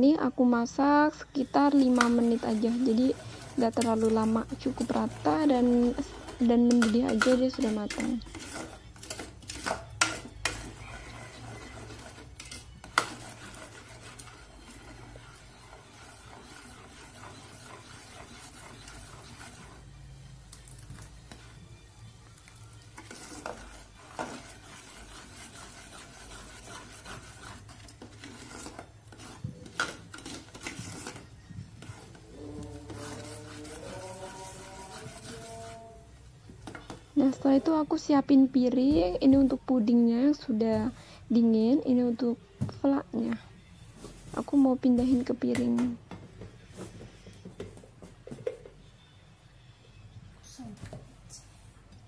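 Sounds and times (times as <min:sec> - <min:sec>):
spoon scraping a metal pot: 0:01.1 - 0:21.6, 0:22.4 - 0:38.0.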